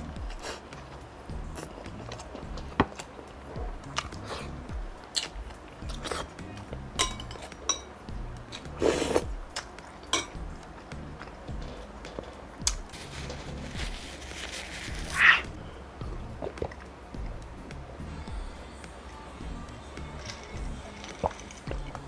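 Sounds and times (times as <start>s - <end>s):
soft background music: 0.0s - 22.0s
metal spoon clinking glass bowl: 7.0s - 7.9s, 10.1s - 10.4s.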